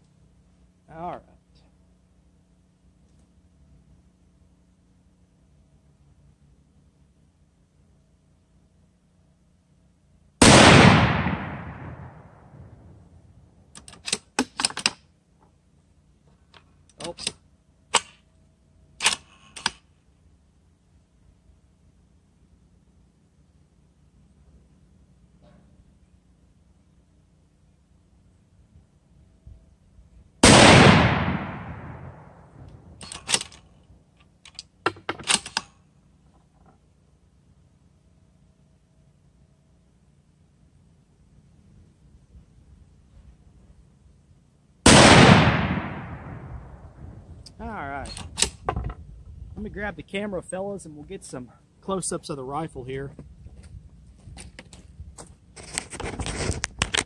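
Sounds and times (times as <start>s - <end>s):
rifle shot with echo: 10.4s - 12.8s, 30.4s - 33.4s, 44.8s - 47.0s
rifle bolt clicking: 13.8s - 15.0s.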